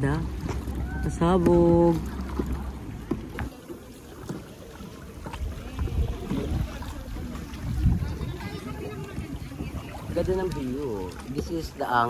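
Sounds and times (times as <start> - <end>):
paddle strokes splashing water: 0.0 - 12.0.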